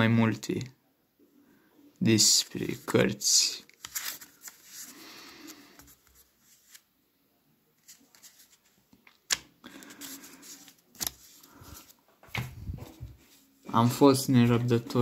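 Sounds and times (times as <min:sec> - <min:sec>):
paper rustling: 0:03.6 - 0:06.9, 0:07.8 - 0:12.0.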